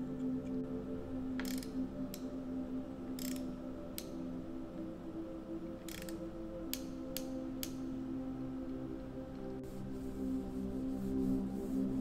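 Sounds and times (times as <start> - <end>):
soft background music: 0.0 - 12.0
hand ratchet clicking: 1.4 - 2.3, 3.2 - 4.1, 5.9 - 7.8.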